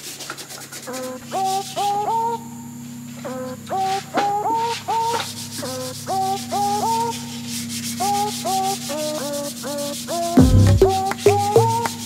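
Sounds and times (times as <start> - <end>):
sandpaper rubbing on sheet metal: 5.0 - 10.4.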